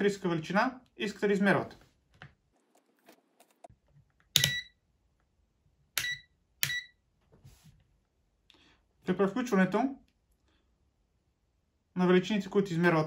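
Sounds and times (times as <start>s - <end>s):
multimeter short high beeps: 4.4s - 4.8s, 6.0s - 7.0s.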